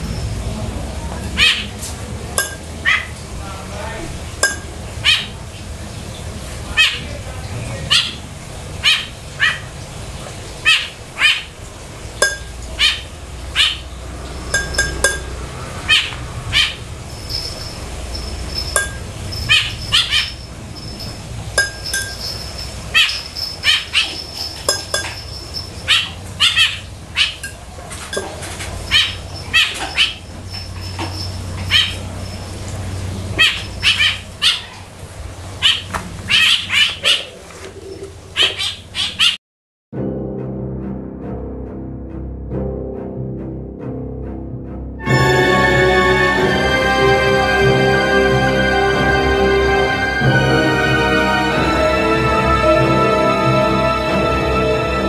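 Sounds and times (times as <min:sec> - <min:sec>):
low steady hum: 0:00.0 - 0:35.6
small birds chirping: 0:03.8 - 0:34.9.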